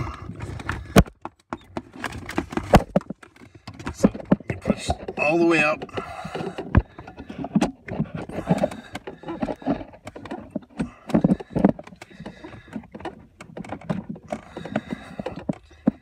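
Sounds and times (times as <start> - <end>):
clicks and clunks of pedal work: 0.0 - 16.0.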